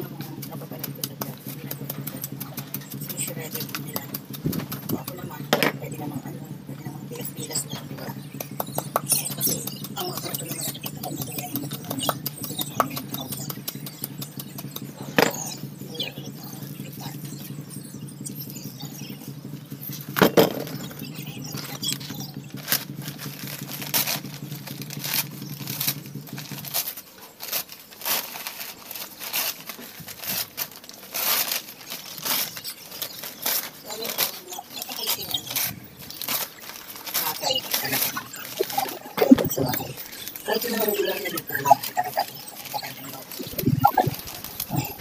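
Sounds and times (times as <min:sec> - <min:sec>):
paper bag tearing and crumpling: 0:22.6 - 0:45.0.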